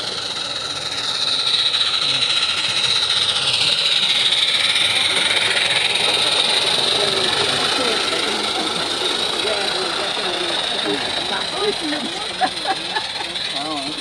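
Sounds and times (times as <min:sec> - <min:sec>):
steam exhaust hissing: 0:00.0 - 0:14.0.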